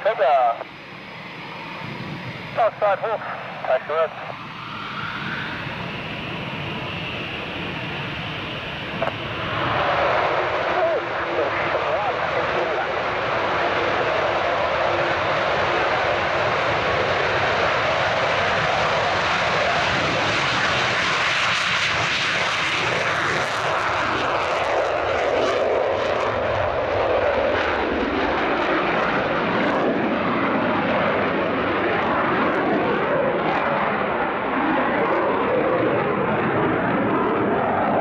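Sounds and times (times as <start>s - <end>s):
jet engines roaring: 0.0s - 38.0s.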